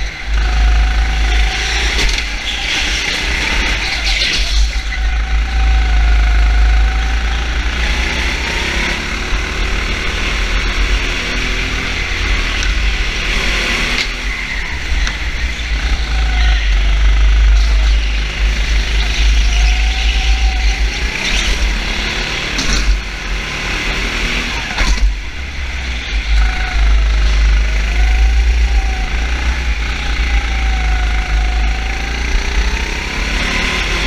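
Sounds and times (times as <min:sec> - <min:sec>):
motor vehicle engines running: 0:00.0 - 0:34.0
heavy low rumble: 0:09.1 - 0:23.4.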